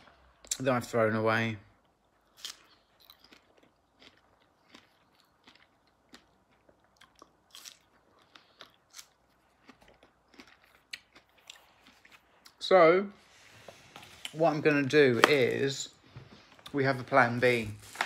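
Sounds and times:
soft chewing clicks: 0:02.6 - 0:12.6.

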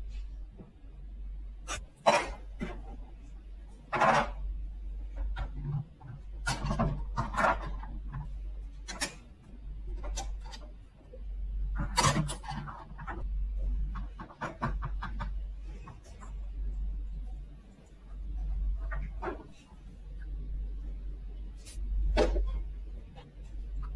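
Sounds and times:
steady low hum: 0:00.0 - 0:23.9
plastic toys clicking and tapping: 0:06.4 - 0:09.3.

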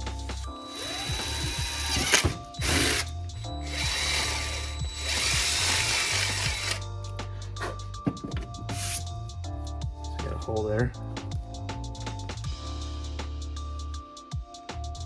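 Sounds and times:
cordless drill boring plastic: 0:00.7 - 0:06.8.

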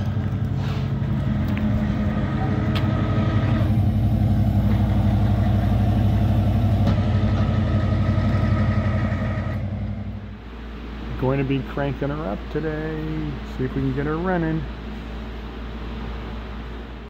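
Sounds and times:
tow truck engine idling: 0:00.0 - 0:17.0.

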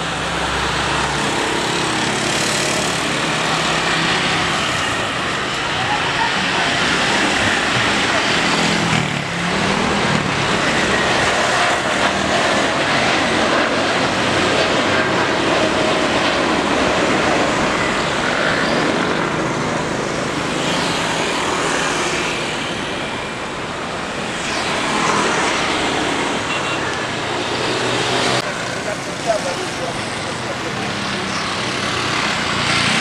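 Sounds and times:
jet engine rumble: 0:00.0 - 0:32.4.

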